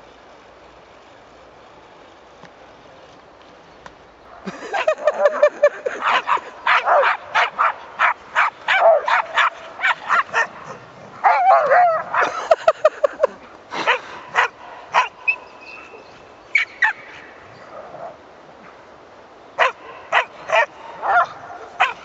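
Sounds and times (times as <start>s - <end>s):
dogs play-barking: 4.3s - 12.5s, 13.8s - 18.2s, 19.6s - 22.0s
dogs whining yelps: 4.7s - 12.4s, 13.8s - 17.8s.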